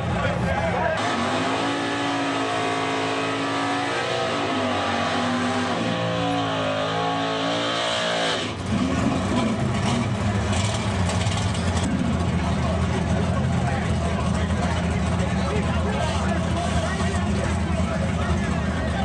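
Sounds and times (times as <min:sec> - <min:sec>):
drag racing car engine at high revs: 0:00.0 - 0:19.0
car engine revving hard: 0:01.0 - 0:12.2.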